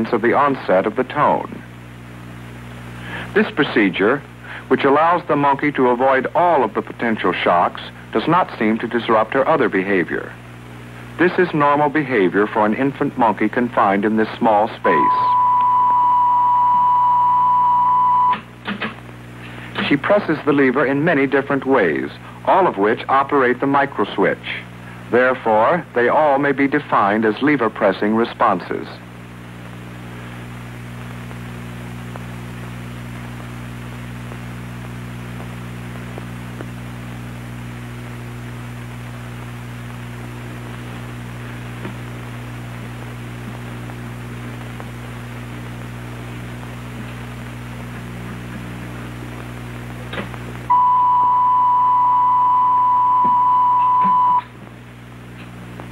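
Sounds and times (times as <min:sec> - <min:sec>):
low hum and hiss: 0:00.0 - 0:55.9
loud steady warning tone: 0:14.8 - 0:18.5, 0:50.7 - 0:54.6.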